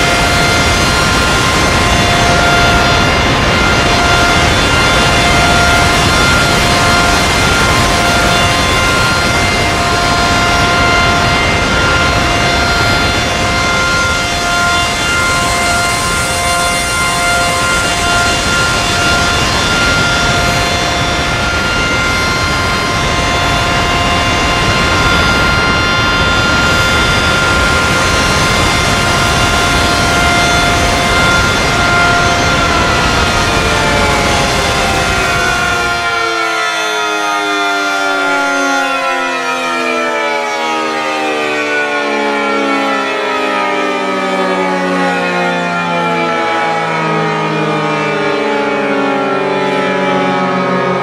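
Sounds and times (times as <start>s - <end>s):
air dryer blowers rushing: 0.0s - 38.2s
whining tones: 0.0s - 51.0s.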